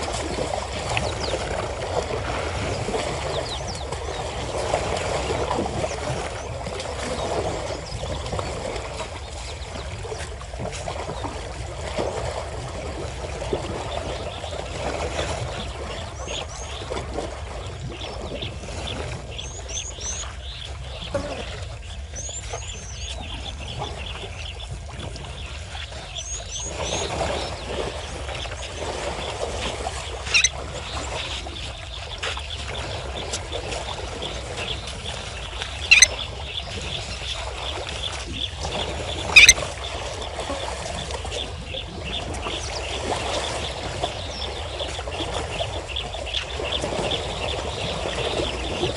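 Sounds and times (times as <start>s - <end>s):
water splashing and sloshing: 0.0s - 48.9s
bird chirping: 30.3s - 30.5s, 35.8s - 36.3s, 39.3s - 39.6s.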